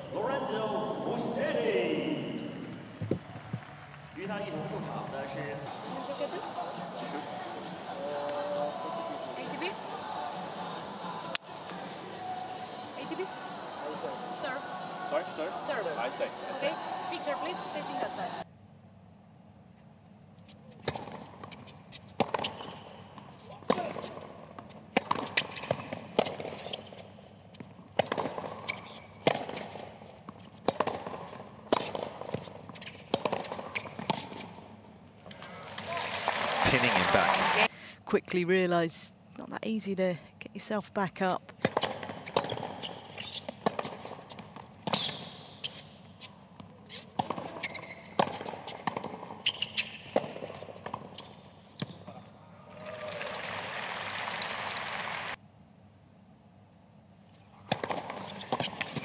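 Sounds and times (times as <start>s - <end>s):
shoe squeaks on court: 20.4s - 24.1s, 25.0s - 27.1s, 28.2s - 34.6s, 41.6s - 52.3s, 57.7s - 59.0s
tennis racket striking ball: 22.2s - 22.6s, 24.9s - 26.6s, 30.6s - 34.5s, 41.6s - 45.2s, 47.2s - 51.1s
crowd applauding: 35.6s - 37.7s, 52.6s - 55.4s.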